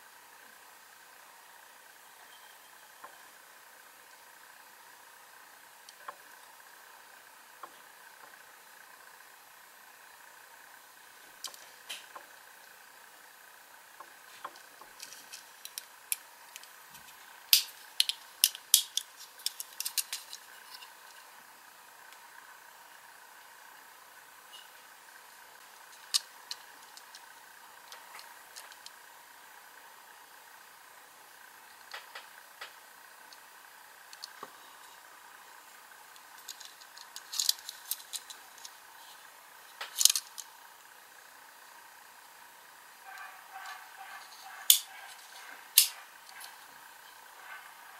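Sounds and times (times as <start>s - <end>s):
toy car clicking and rattling: 14.9s - 21.3s, 25.7s - 29.0s, 34.1s - 34.5s, 36.1s - 40.5s, 44.2s - 46.4s
fingernails clicking on metal toy car: 17.5s - 20.9s, 36.2s - 38.7s, 39.8s - 40.5s, 44.2s - 45.0s.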